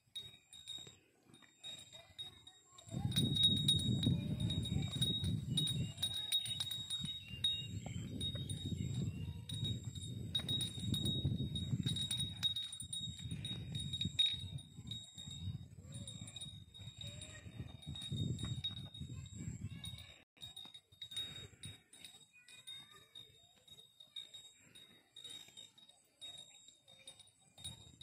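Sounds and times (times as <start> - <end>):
wind buffeting microphone: 2.8 - 20.5.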